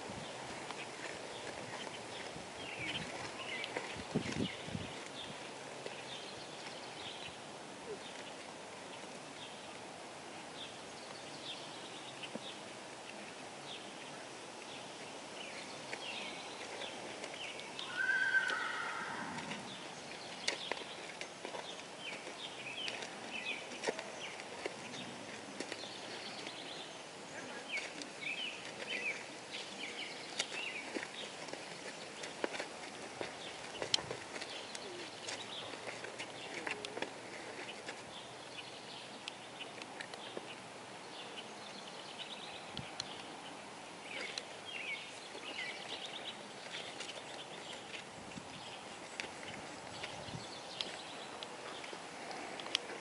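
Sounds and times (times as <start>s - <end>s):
hooves on sand: 0.0s - 8.5s, 14.6s - 53.0s
birds chirping: 0.2s - 9.8s, 10.4s - 53.0s
horse whinnying: 17.9s - 19.7s.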